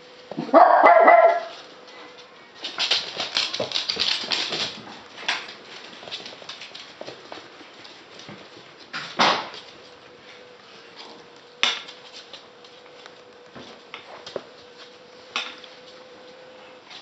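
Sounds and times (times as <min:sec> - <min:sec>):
puppy yapping: 0:00.4 - 0:01.5
light ticking and scuffling: 0:01.4 - 0:17.0.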